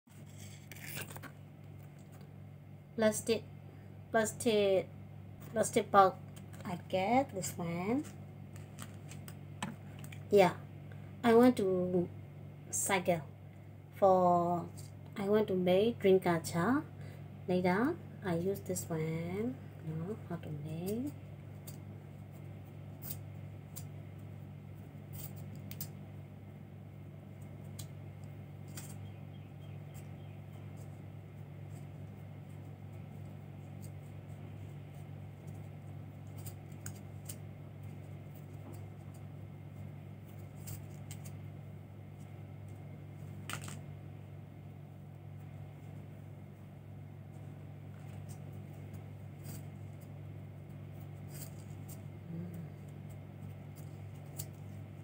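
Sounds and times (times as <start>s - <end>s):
low hum: 0.1s - 55.0s.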